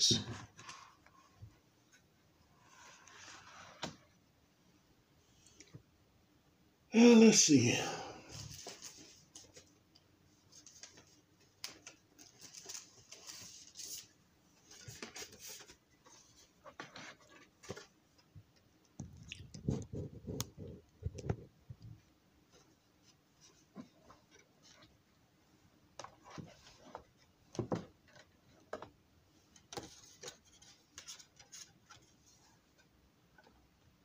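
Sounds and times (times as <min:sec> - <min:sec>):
paper rustling: 0:10.4 - 0:18.0.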